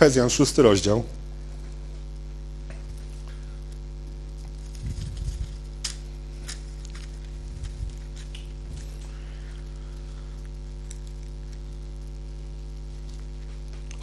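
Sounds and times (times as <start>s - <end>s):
electrical mains hum: 0.0s - 14.0s
faint clicks and rustles: 1.6s - 12.2s.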